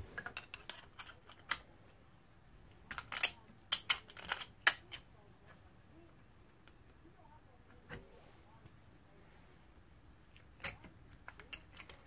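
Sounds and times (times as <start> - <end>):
metal parts clicking and clinking: 0.2 - 1.7, 2.9 - 5.0, 10.4 - 12.0.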